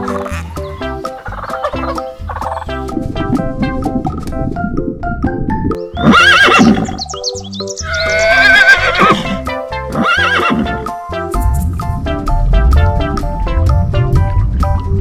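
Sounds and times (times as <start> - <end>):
background music: 0.0 - 15.0
horse neighing: 6.0 - 7.0, 7.8 - 9.4, 10.0 - 10.8.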